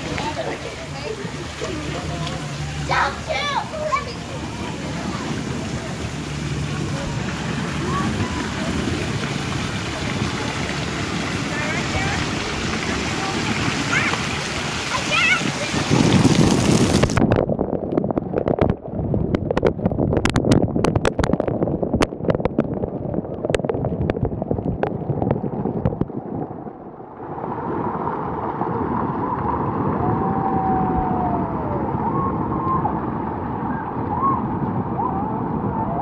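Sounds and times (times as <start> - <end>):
water spray splashing: 0.0 - 17.2
flowing water rushing: 0.0 - 36.0.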